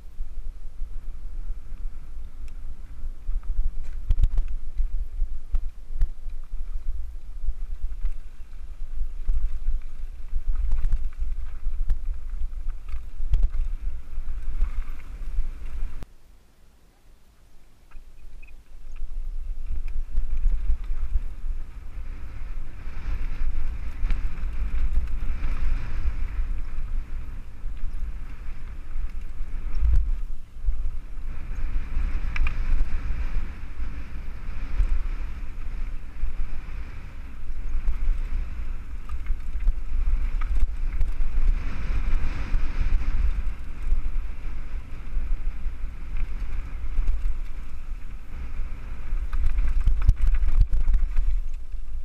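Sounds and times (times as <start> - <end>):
wind rumbling on microphone: 0.0 - 52.0
bike rattling over rocky ground: 0.1 - 16.0, 18.0 - 52.0.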